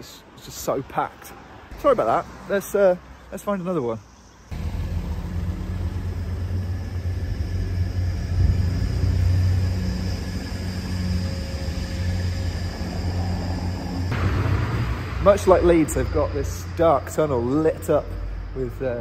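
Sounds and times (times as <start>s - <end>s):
train rumbling over steel bridge: 4.5s - 18.9s
faint engine hum: 4.5s - 19.0s.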